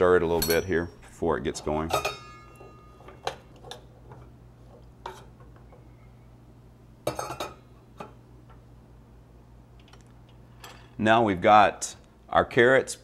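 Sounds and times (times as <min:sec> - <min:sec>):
metal spoon clinking saucepan: 0:00.4 - 0:00.9, 0:01.6 - 0:03.8
metal lid clattering on pan: 0:01.9 - 0:03.5.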